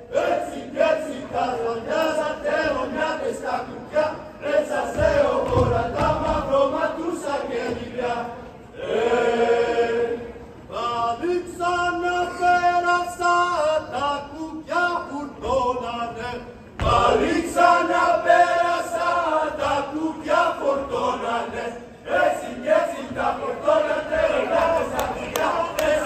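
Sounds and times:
group of voices singing: 0:00.0 - 0:26.0
heavy thump: 0:04.9 - 0:06.4, 0:16.8 - 0:17.2.

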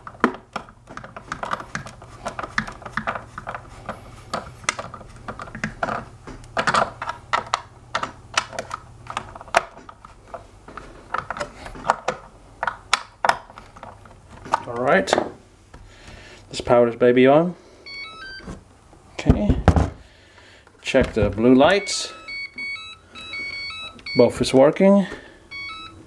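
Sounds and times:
hands handling plastic shell: 0:00.0 - 0:15.8.

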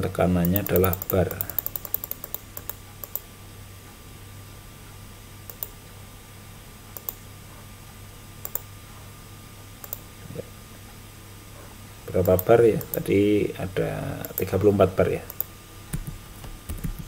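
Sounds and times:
low electrical hum: 0:00.0 - 0:17.0.

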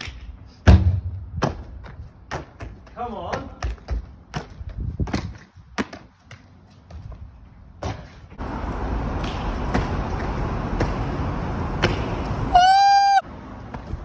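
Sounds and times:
feet and hands thudding on concrete: 0:00.7 - 0:08.4.

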